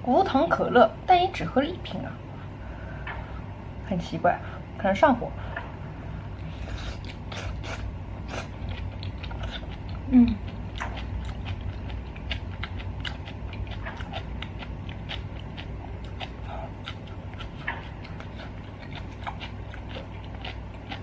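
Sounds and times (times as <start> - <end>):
wet chewing mouth clicks: 6.4 - 21.0
person humming: 10.0 - 10.5.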